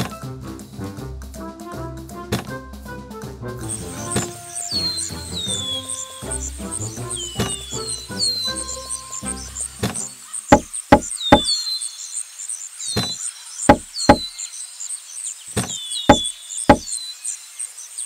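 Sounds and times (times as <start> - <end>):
faint high chirping: 3.7 - 18.0
hammer knocking on wood: 9.8 - 11.5, 13.0 - 14.3, 15.6 - 16.9.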